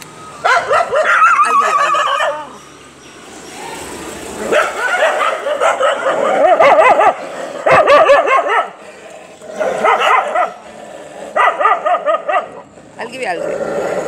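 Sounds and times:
dogs whining and yipping: 0.4 - 2.7, 4.4 - 8.7, 9.6 - 10.6.

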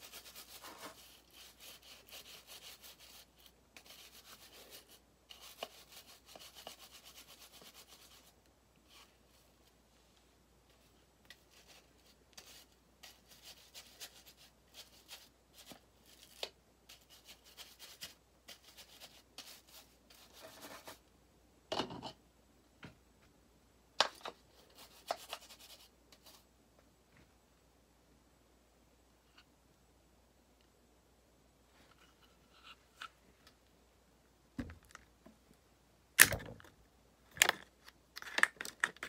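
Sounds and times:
brush scrubbing metal: 0.0 - 8.3.

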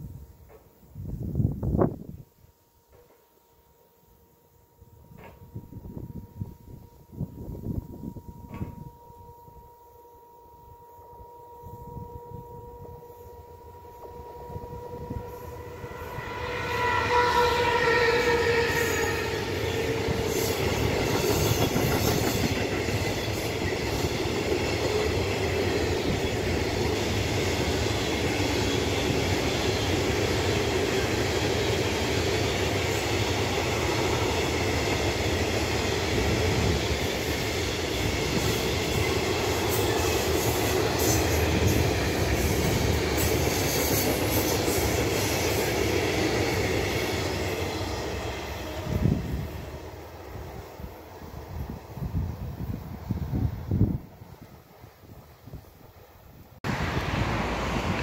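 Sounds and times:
locomotive steady tone: 2.5 - 58.0
train wagons rumbling and clattering: 17.6 - 50.6.

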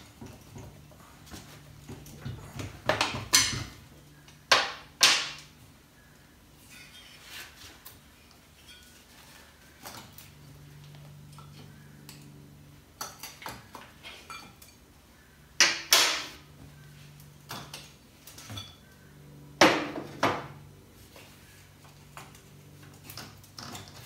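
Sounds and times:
metal tools clinking: 13.0 - 14.9.

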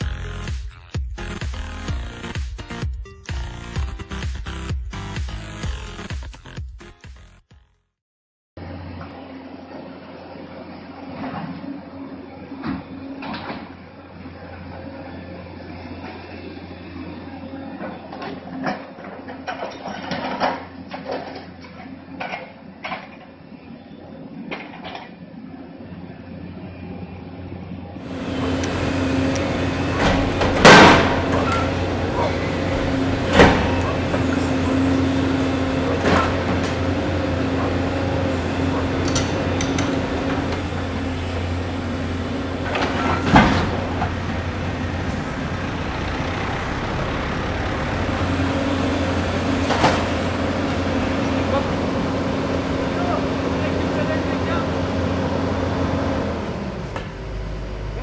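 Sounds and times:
diesel engine running: 28.0 - 58.0
masonry crashing: 28.1 - 52.9
excavator knocking: 28.1 - 56.2.

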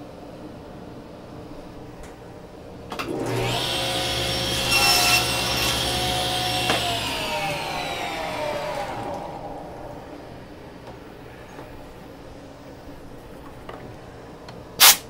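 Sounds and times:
table saw whining: 2.9 - 11.8
saw blade spinning down: 3.0 - 10.8
saw blade cutting wood: 3.2 - 9.5.

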